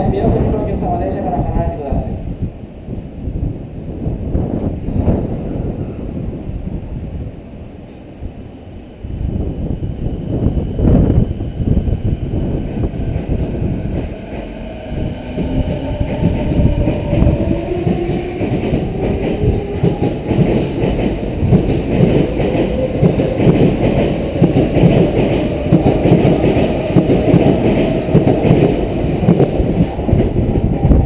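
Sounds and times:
wheels rumbling on rails: 9.0s - 31.0s.

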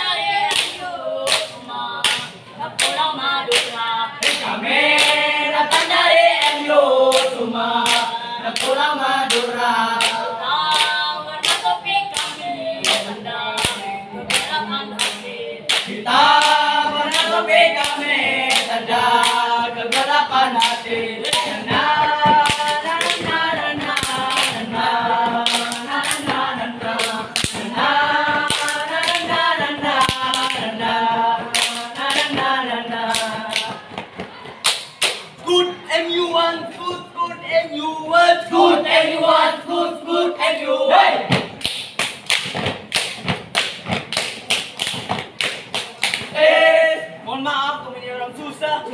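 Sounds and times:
young voices singing in unison: 0.0s - 41.6s, 46.2s - 47.5s
hands clapping: 0.5s - 35.4s, 41.3s - 46.4s
step-dance stomps: 41.2s - 45.4s.

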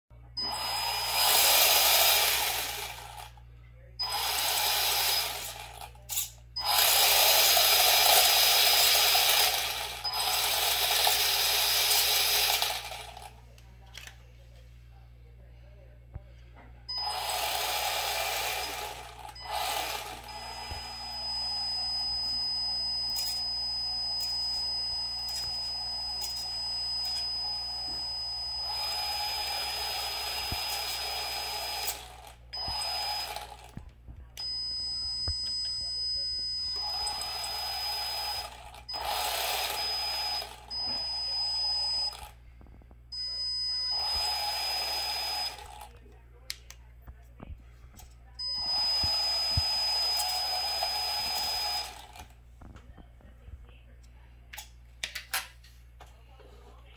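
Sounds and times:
electric motor spinning wheels: 0.4s - 3.4s, 4.0s - 13.4s, 16.9s - 33.8s, 34.4s - 42.4s, 43.2s - 45.9s, 48.4s - 52.3s.

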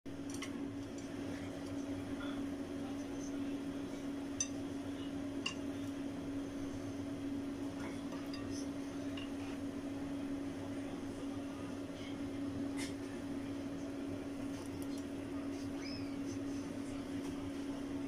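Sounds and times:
kitchen fan hum: 0.1s - 18.0s.

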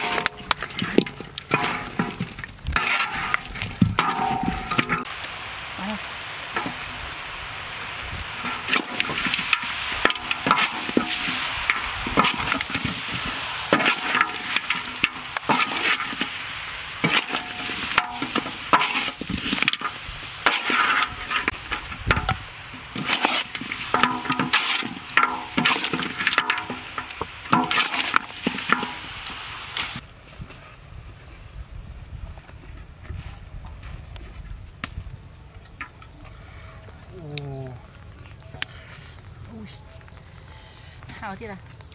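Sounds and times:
metal spatula scraping wok: 2.8s - 5.1s, 8.2s - 30.0s
meat sizzling in a wok: 5.0s - 30.0s.

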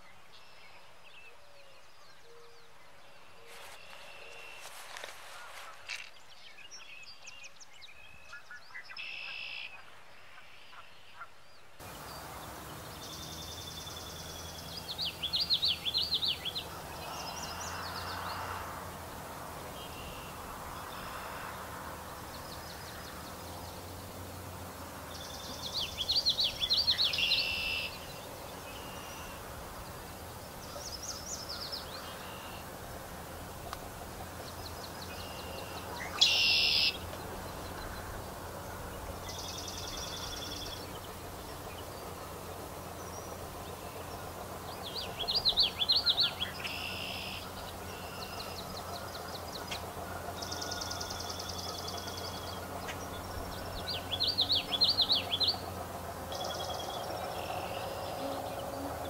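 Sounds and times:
low background hum: 11.5s - 59.0s
swallow twittering: 11.8s - 59.0s.

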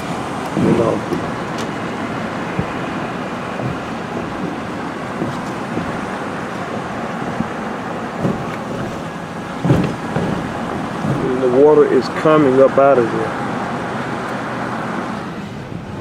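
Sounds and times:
low bump: 0.0s - 12.8s
road and wind noise in car: 0.0s - 16.0s
tyres hissing on wet road: 0.0s - 16.0s.

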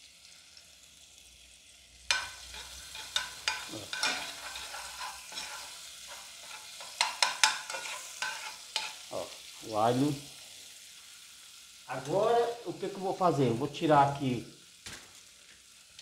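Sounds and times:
garlic sizzling in oil: 0.0s - 16.0s
utensil scraping and tapping pot: 2.1s - 9.0s.

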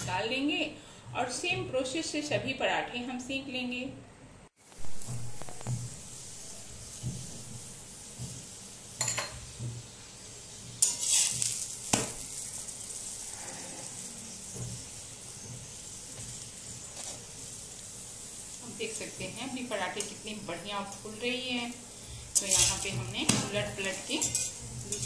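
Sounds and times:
flatbread sizzling on a hot pan: 4.6s - 25.0s
metal spatula scraping a pan: 10.8s - 15.0s, 22.2s - 25.0s.

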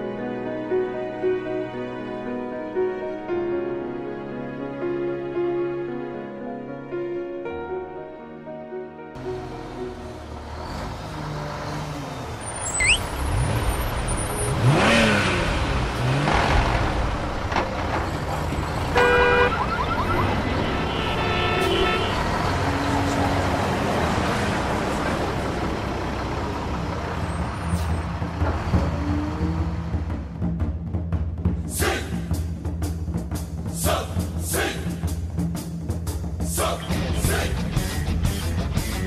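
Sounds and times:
vehicles passing by: 9.2s - 32.8s
short horn-like tone: 19.0s - 22.2s.

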